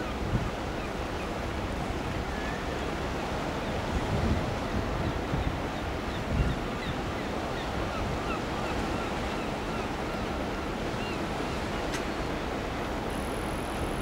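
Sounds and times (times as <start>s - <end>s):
water rushing and waves: 0.0s - 14.0s
wind buffeting microphone: 3.8s - 6.9s.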